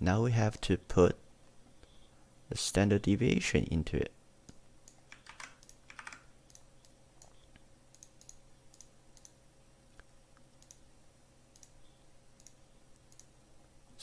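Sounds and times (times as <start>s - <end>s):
computer mouse and keyboard clicks: 4.5s - 9.4s.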